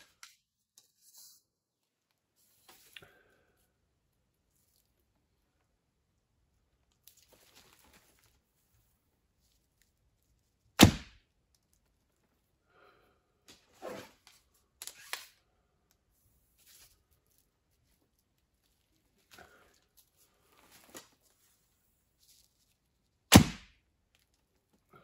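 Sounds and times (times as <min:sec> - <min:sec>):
arrow striking: 0:10.8 - 0:11.2, 0:23.3 - 0:23.8.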